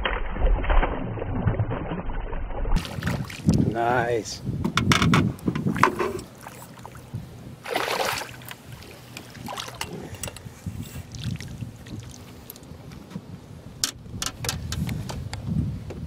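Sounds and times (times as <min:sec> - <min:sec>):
water and handling noise: 0:00.0 - 0:03.9, 0:04.6 - 0:15.4
fish splashing in water: 0:02.8 - 0:03.6, 0:07.6 - 0:09.8.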